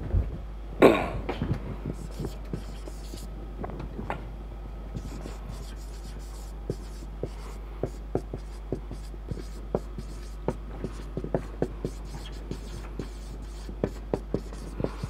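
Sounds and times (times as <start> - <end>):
marker writing on a whiteboard: 1.9 - 3.3, 5.0 - 15.0.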